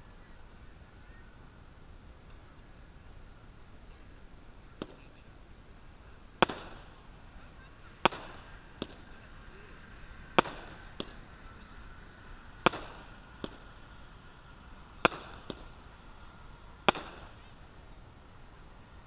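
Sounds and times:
firework bangs: 4.7s - 5.3s, 6.4s - 9.6s, 10.3s - 11.3s, 12.5s - 13.9s, 14.9s - 17.9s
smaller firework pops: 4.7s - 5.3s, 6.4s - 7.1s, 8.0s - 9.3s, 10.4s - 11.2s, 12.6s - 13.7s, 15.0s - 15.8s, 16.8s - 17.6s.

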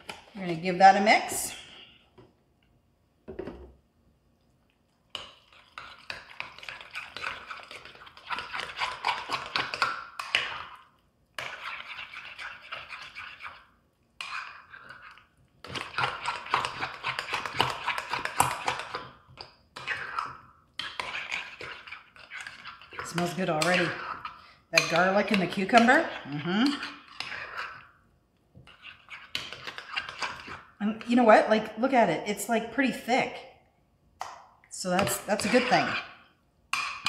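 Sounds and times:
utensil scraping glass bowl: 5.2s - 10.8s, 11.4s - 19.2s, 19.8s - 27.9s, 28.6s - 31.3s, 34.8s - 36.3s.

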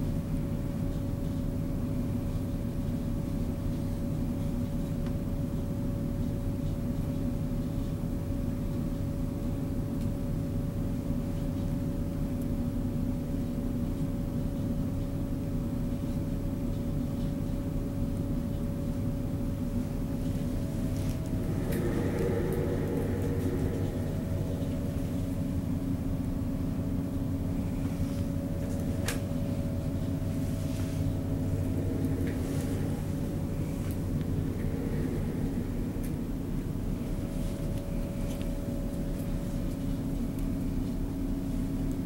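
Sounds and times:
low mechanical hum: 0.0s - 42.0s
constant mid-pitched tone: 19.7s - 28.7s, 29.4s - 39.8s.

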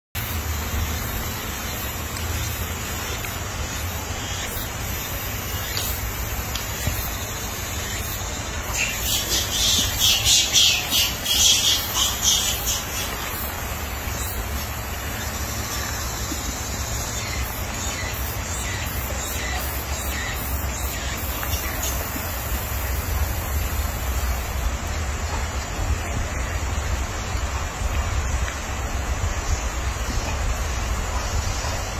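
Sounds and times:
steady hiss: 0.2s - 31.9s
wind noise on microphone: 22.2s - 31.9s.

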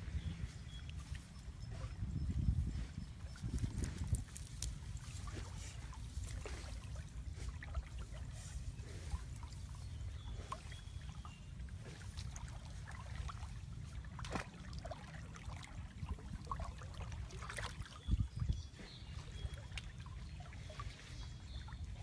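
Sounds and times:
steady low rumble: 0.0s - 12.6s
water sloshing: 0.0s - 22.0s
hands splashing in muddy water: 3.4s - 11.2s, 11.8s - 15.8s.

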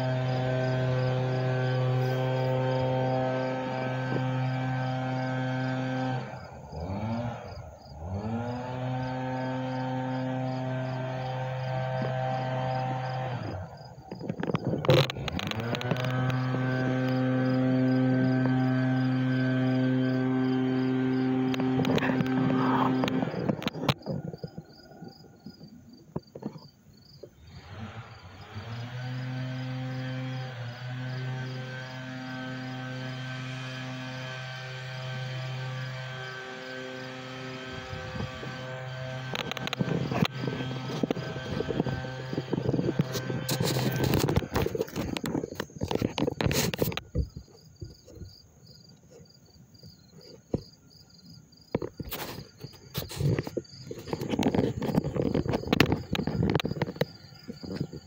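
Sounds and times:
insect chirping: 0.0s - 58.0s
low mechanical hum: 0.0s - 58.0s
loud rustling: 37.4s - 48.2s.

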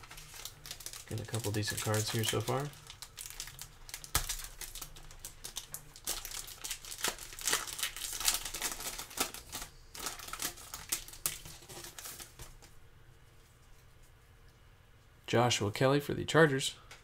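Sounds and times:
foil wrapper crinkling: 0.0s - 12.7s.

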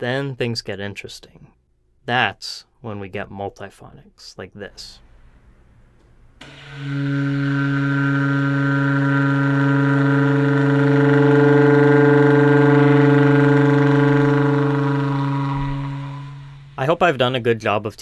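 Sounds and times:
baritone saxophone multiphonic chord: 6.4s - 17.0s.

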